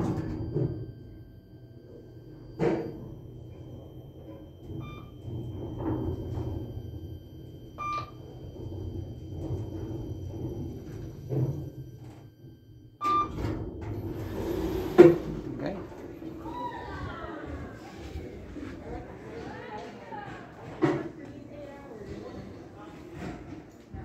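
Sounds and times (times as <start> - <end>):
elevator travelling hum: 0.0 - 24.0
short electronic beeps: 4.0 - 8.4, 11.6 - 13.4.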